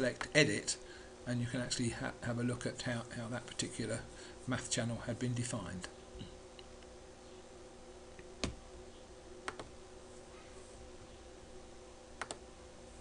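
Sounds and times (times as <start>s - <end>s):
faint steady hum: 0.0s - 13.0s
computer mouse clicking: 9.4s - 9.7s, 12.2s - 12.4s.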